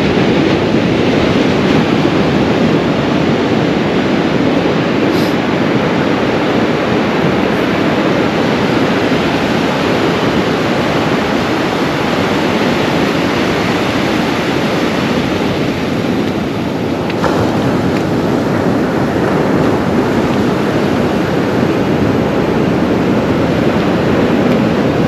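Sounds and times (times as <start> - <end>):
ocean surf breaking: 0.0 - 25.0.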